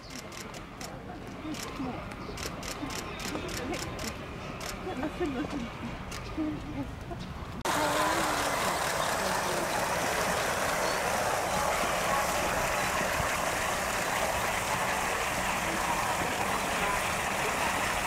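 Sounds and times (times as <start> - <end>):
background hubbub of voices: 0.0 - 18.0.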